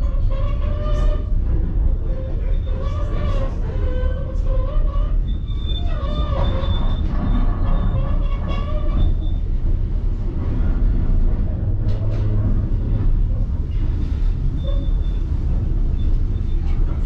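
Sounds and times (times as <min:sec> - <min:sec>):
train rumbling on track: 0:00.0 - 0:17.0.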